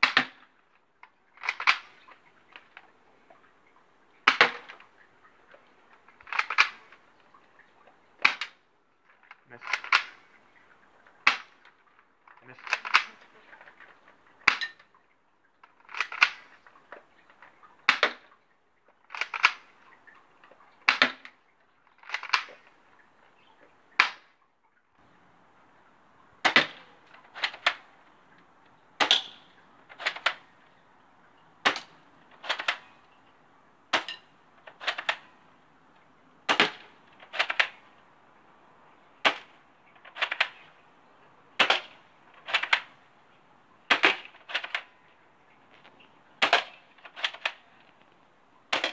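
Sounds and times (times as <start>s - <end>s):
bb gun shots: 36.5s - 37.7s, 43.9s - 44.8s, 46.4s - 47.3s.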